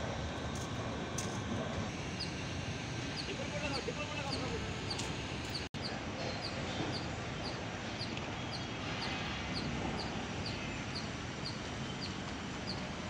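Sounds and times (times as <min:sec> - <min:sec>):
hot air blower rushing: 0:00.0 - 0:05.7
bird chirping: 0:02.1 - 0:12.9.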